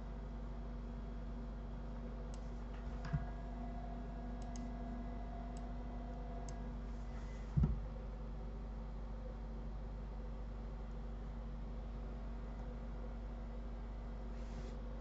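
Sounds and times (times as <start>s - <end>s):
low electrical hum: 0.0s - 15.0s
computer mouse clicks: 4.4s - 4.8s.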